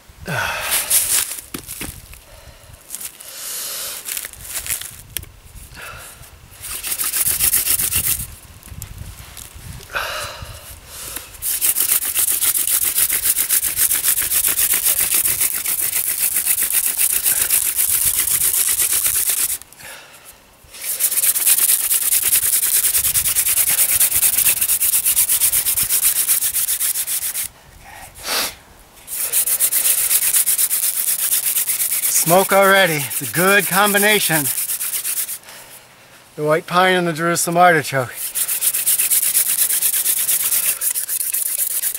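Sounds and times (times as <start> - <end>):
wooden spindle rubbing on board: 6.6 - 8.3, 11.4 - 19.6, 20.8 - 27.5, 29.1 - 35.4, 38.1 - 41.9.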